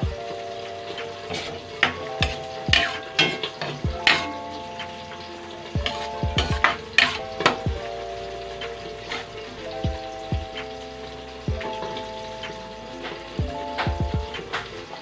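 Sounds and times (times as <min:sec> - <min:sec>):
background music: 0:00.0 - 0:15.0
spoon scraping and clanking on wok: 0:01.3 - 0:05.0, 0:05.8 - 0:07.6.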